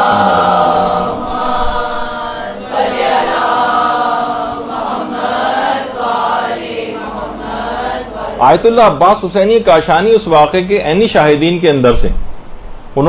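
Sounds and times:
devotional vocal chanting: 0.0 - 9.2.

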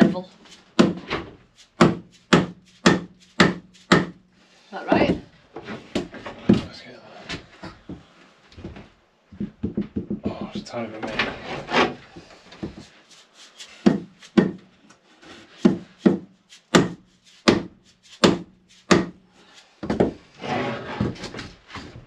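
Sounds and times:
wood scraping on wood: 0.0 - 4.0, 10.3 - 22.0.

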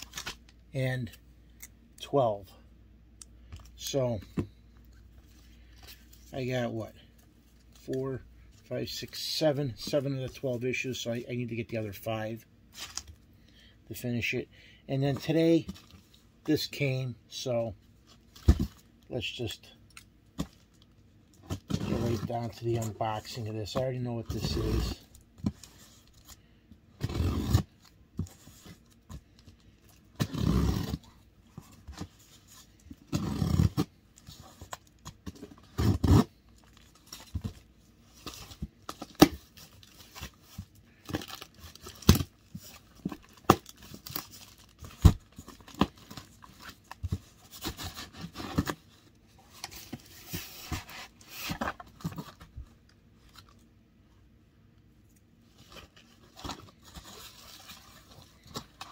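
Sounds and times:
bubble wrap crinkling: 0.0 - 0.6, 41.0 - 48.7
packing tape ripping: 30.2 - 31.0, 33.1 - 33.9, 35.7 - 36.4.

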